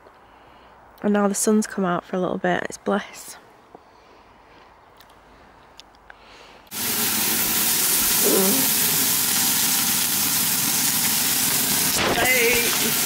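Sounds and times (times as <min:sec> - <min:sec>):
steaks sizzling in frying pan: 0:06.7 - 0:13.0.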